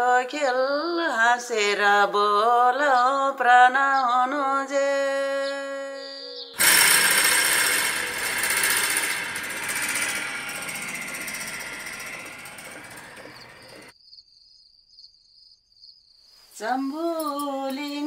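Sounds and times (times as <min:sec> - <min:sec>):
crickets chirping: 0:11.2 - 0:18.0.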